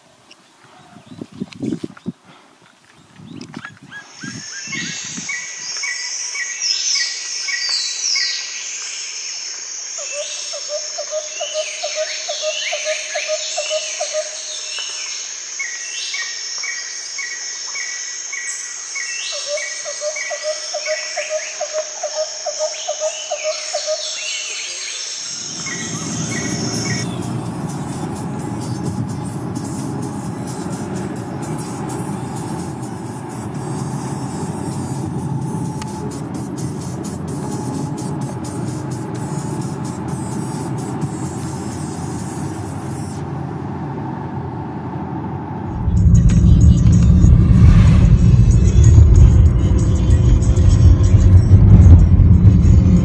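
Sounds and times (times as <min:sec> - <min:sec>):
birds calling: 0:00.1 - 0:08.5, 0:19.0 - 0:41.9
high-pitched insect hum: 0:03.9 - 0:43.2
bird rapid low trill: 0:25.2 - 0:41.9, 0:45.7 - 0:53.0
low rumble: 0:25.5 - 0:38.5, 0:43.4 - 0:53.0.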